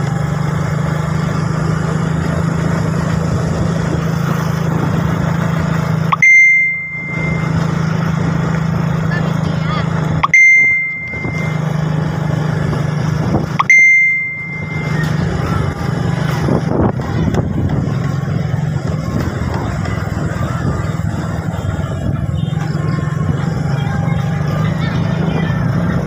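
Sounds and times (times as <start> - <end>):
motorcycle engine running: 0.0 - 26.0
bell-like dings: 6.1 - 8.2, 10.2 - 12.2, 13.6 - 15.8.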